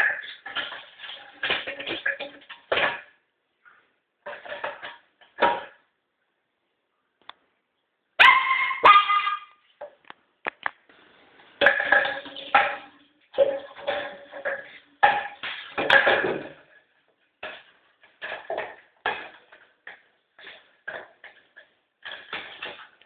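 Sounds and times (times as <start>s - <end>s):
puppy yapping: 8.2s - 9.6s.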